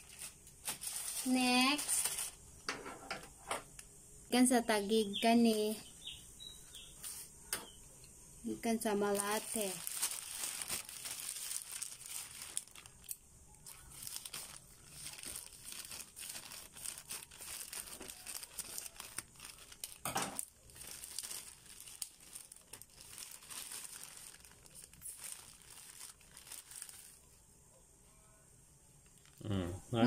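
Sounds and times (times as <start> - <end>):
plastic pouch crinkling: 0.0 - 2.4, 8.8 - 27.3, 29.0 - 29.4
plastic tearing: 0.0 - 2.4, 9.1 - 27.2.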